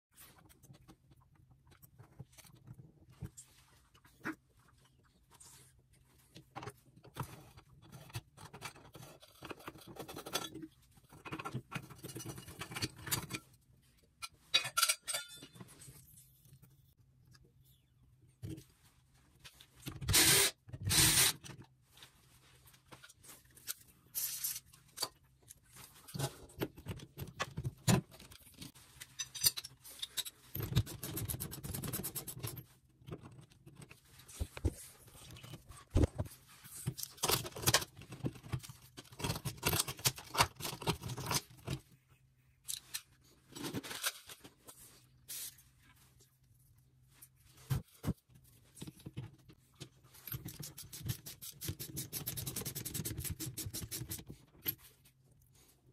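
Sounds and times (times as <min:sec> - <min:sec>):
metal tools clattering: 0:14.5 - 0:15.6.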